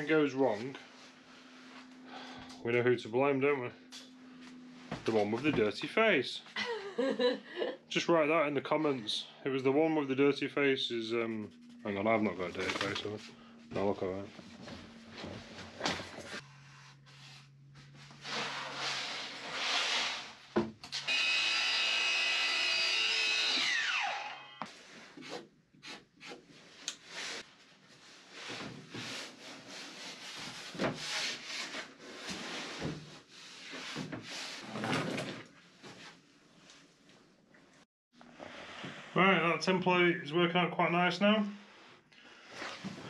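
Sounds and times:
power tool whine: 20.9s - 24.7s.

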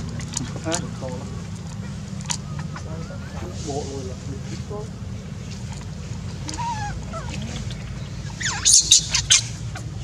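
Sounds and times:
baby monkey cooing: 6.4s - 9.9s
baby monkey screaming: 6.4s - 9.9s.

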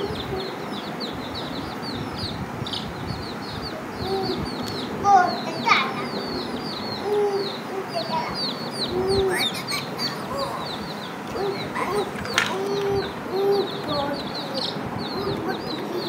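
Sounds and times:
baby chicks peeping: 0.0s - 16.0s
lower longer chick calls: 6.2s - 16.0s.

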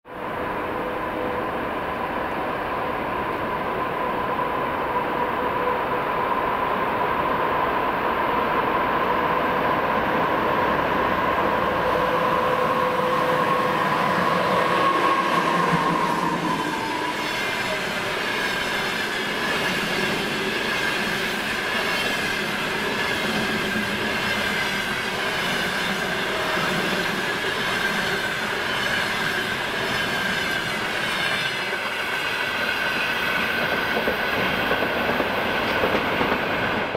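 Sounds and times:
high wheel squeal: 11.6s - 33.5s
train wheels clattering on rails: 15.7s - 36.9s.

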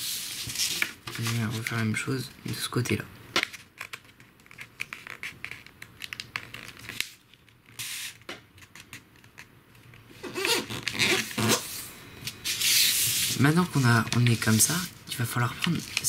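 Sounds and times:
paper rustling and crinkling: 0.0s - 2.0s, 3.4s - 7.8s, 12.4s - 16.0s.

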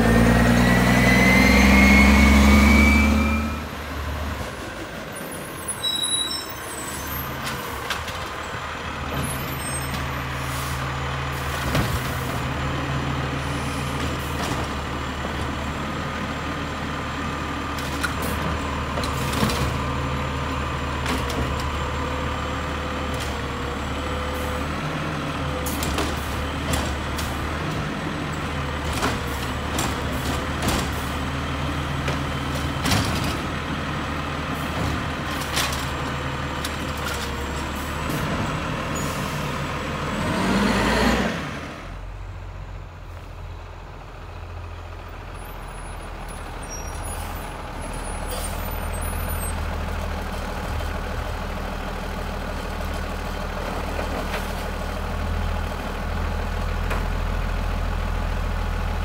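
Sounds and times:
garbage truck engine revving: 0.0s - 4.3s, 37.7s - 42.1s
garbage truck running at curb: 0.0s - 59.0s.

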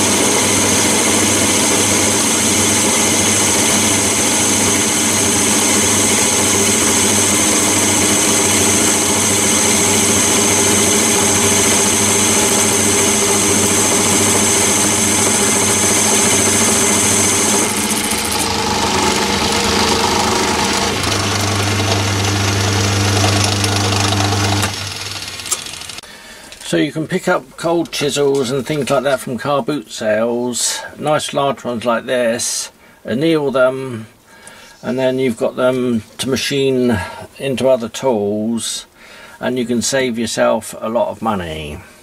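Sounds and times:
lathe cutting tool chattering: 0.0s - 26.0s
lathe running: 0.0s - 26.0s.

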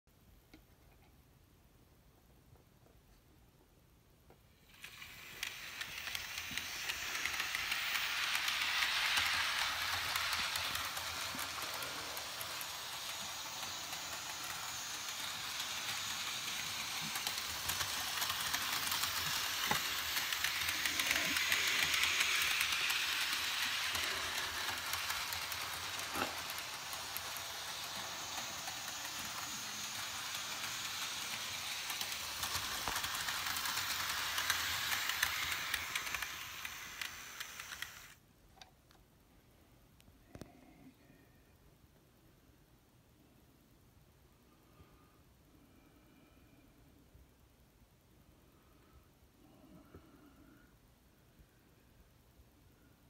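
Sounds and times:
model train running on metal track: 4.6s - 38.2s.

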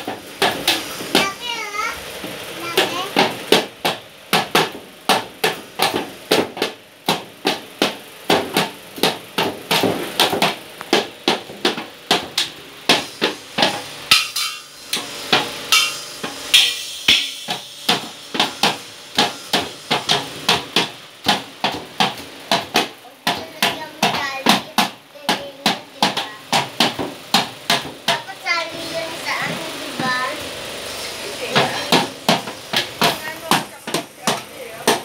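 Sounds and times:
toy drum kit struck with sticks: 2.6s - 30.4s, 31.4s - 35.0s.

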